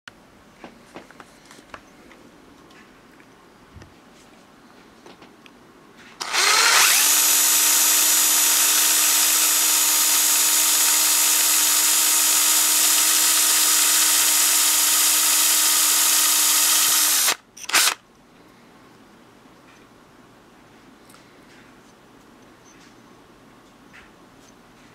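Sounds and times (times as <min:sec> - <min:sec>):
power drill whining through metal: 0:06.2 - 0:18.0.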